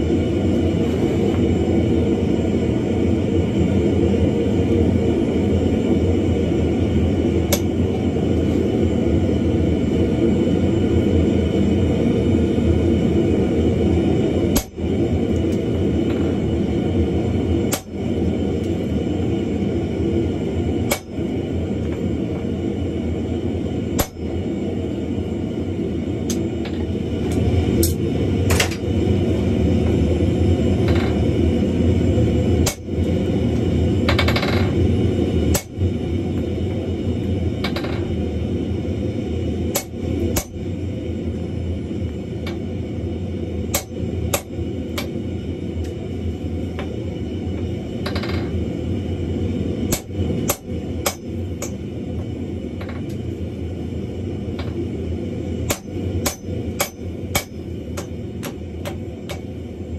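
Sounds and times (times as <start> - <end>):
low rumble: 0.0 - 59.9
hammer striking iron on anvil: 17.7 - 18.0, 20.9 - 21.2, 24.0 - 24.3, 35.5 - 35.8, 39.8 - 40.6, 43.7 - 45.1, 49.9 - 51.8, 55.7 - 59.5.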